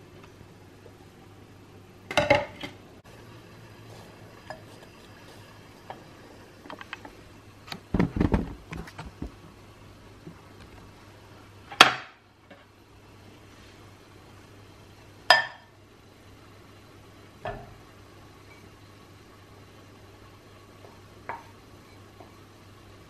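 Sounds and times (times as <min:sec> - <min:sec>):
bowls and utensils clinking: 0:04.4 - 0:05.0
heavier knocks and thuds: 0:07.9 - 0:09.4.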